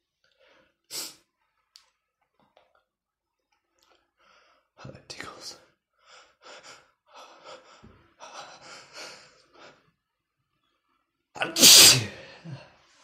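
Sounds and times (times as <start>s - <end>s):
man sneezing: 11.4s - 12.7s.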